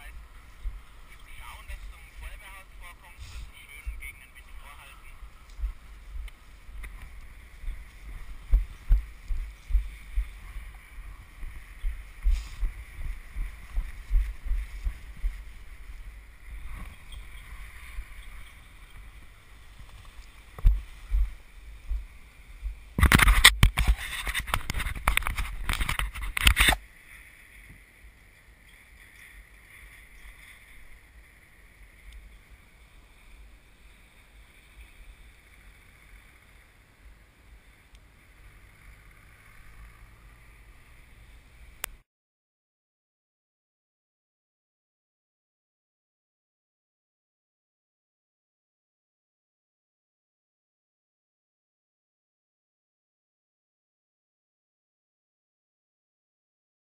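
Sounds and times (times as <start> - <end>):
wind buffeting microphone: 0.0 - 26.8
low thumps: 5.2 - 18.4, 19.0 - 23.8.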